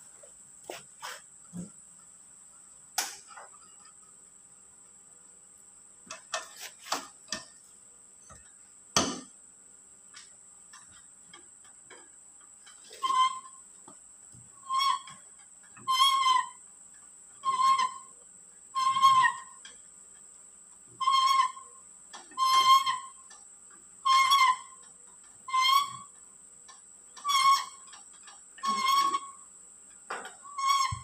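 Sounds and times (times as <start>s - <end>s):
wheel nut squeaking: 10.8s - 16.7s, 17.3s - 23.4s, 24.0s - 26.3s, 27.1s - 31.0s.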